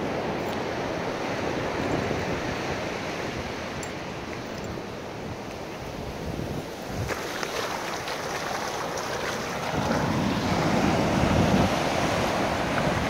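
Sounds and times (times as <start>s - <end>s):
wind on microphone: 0.0s - 13.0s
ocean surf breaking on sand: 5.1s - 13.0s.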